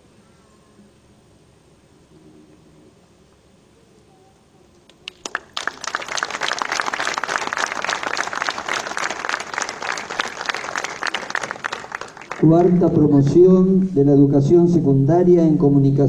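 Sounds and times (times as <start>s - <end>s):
audience applauding: 4.9s - 13.1s.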